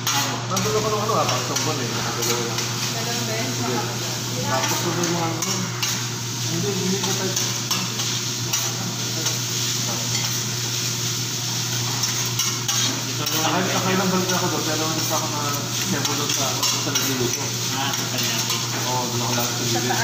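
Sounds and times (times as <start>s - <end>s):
rice sizzling on a griddle: 0.0s - 20.0s
metal spatula scraping a griddle: 11.8s - 20.0s.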